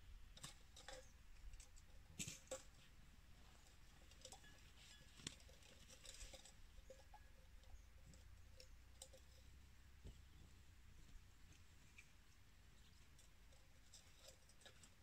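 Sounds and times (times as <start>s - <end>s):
faint clicks and rustles: 0.0s - 15.0s.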